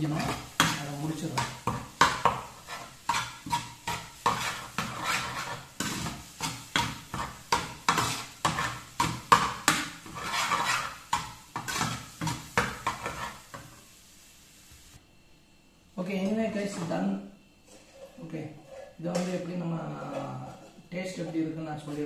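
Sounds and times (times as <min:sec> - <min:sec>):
turner scraping a frying pan: 0:00.0 - 0:13.8, 0:17.6 - 0:21.4.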